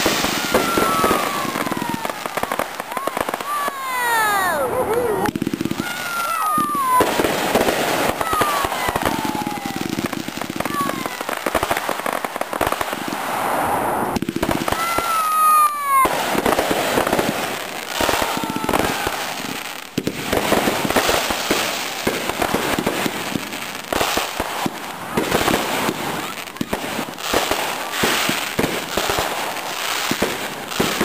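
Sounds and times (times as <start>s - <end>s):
falling firework whistle: 0.0s - 12.2s, 13.2s - 23.0s
fireworks crackling and banging: 0.0s - 31.0s.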